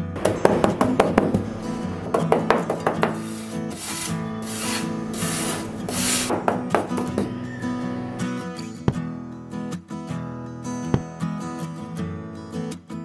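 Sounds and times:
acoustic guitar music: 0.0s - 13.0s
scraping strokes on wood: 0.4s - 7.9s.

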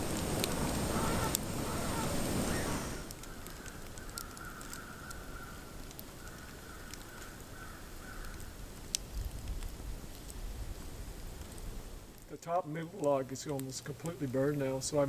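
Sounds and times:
log fire crackling and popping: 0.0s - 15.0s.

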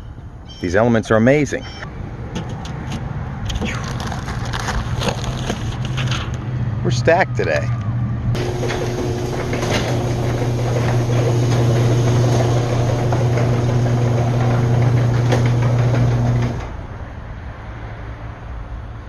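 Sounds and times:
garage door opener motor hum: 8.4s - 16.8s.

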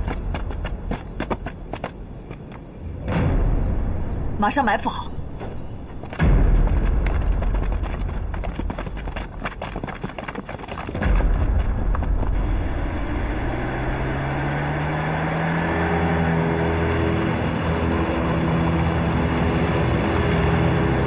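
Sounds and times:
tyre and road noise: 0.0s - 21.0s
car engine running: 11.1s - 21.0s.

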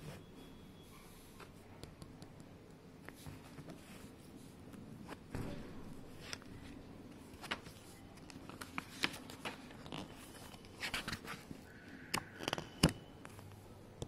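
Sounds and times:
paper rustling: 3.0s - 11.6s.

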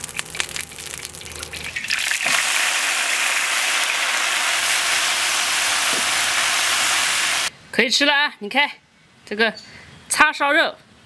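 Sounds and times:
vegetables sizzling in a wok: 0.0s - 7.5s.

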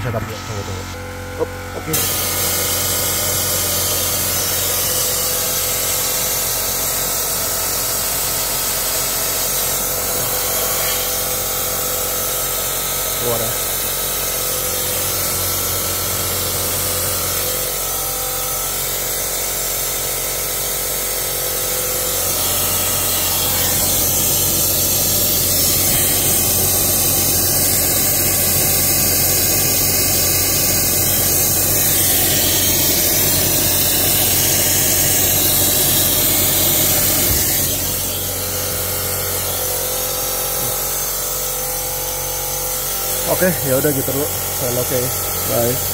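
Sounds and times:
air cleaning gun spraying hiss: 1.8s - 18.0s, 18.6s - 45.9s.

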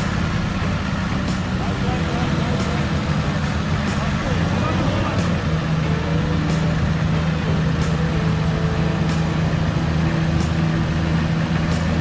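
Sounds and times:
engine running at steady revs: 0.0s - 12.0s.

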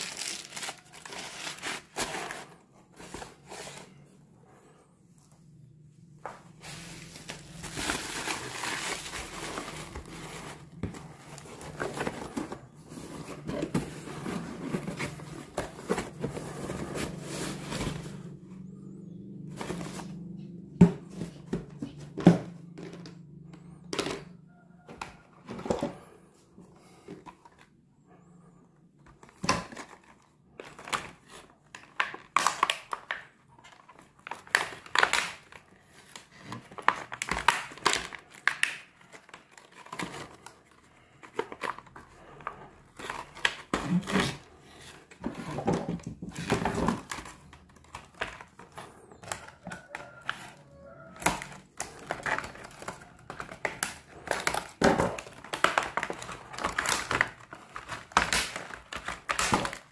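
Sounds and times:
plastic packaging crackling: 0.0s - 2.5s, 6.6s - 18.2s.

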